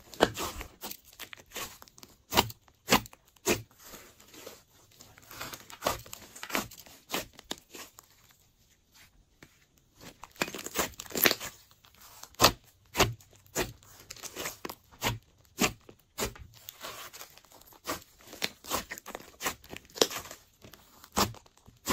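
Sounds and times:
slime popping and crackling: 0:00.0 - 0:03.7, 0:10.2 - 0:21.9.

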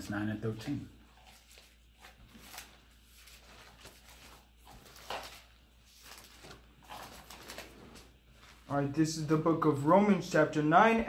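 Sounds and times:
book pages turning: 0:00.5 - 0:08.7.

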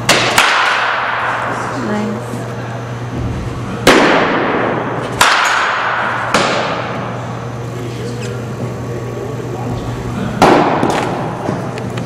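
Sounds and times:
baseball bat cracks echoing: 0:00.0 - 0:01.6, 0:03.8 - 0:07.2, 0:10.3 - 0:11.8
steady low hum: 0:00.0 - 0:12.0.

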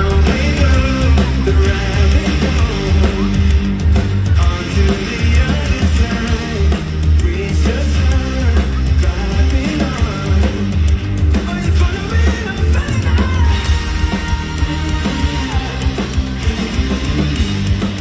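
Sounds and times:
live rock band playing: 0:00.0 - 0:18.0.

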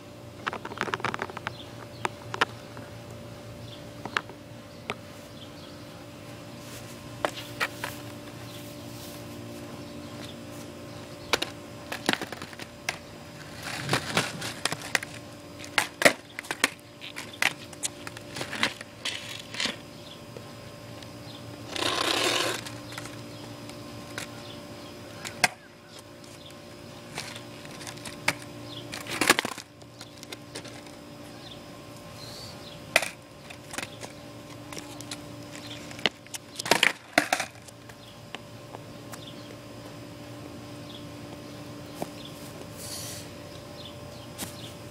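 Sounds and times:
faint steady hum: 0:00.0 - 0:44.9
skateboard clacking on concrete: 0:13.6 - 0:19.8, 0:33.0 - 0:38.0.

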